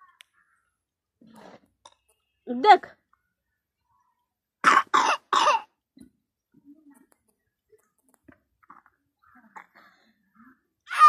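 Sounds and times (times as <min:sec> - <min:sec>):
person coughing: 0:04.7 - 0:05.7.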